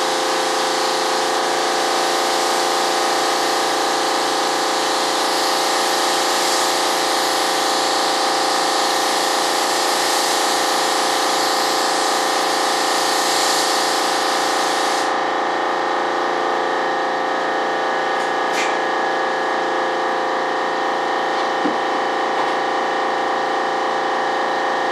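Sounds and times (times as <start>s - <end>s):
spray gun hissing: 0.0s - 15.2s.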